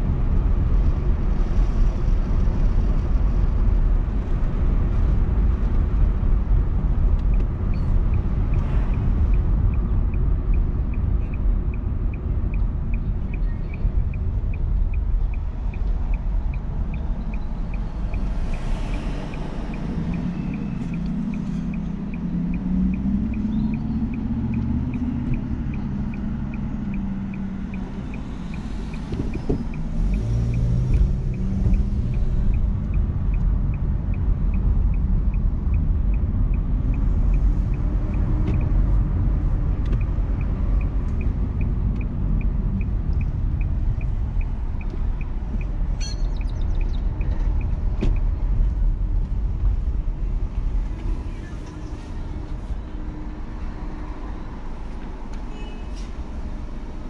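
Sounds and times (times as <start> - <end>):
car engine and road rumble: 0.0 - 57.0
turn signal clicking: 7.1 - 51.8.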